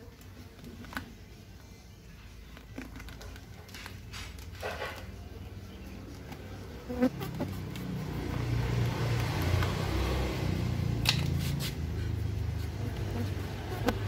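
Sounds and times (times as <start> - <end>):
bees buzzing: 6.7 - 8.6, 12.7 - 14.0.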